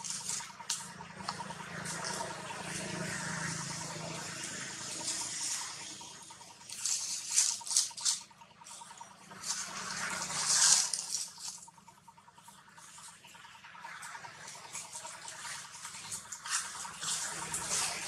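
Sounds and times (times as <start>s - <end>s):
dry leaves rustling and crackling: 0.0s - 2.3s, 6.6s - 11.6s, 14.5s - 18.0s.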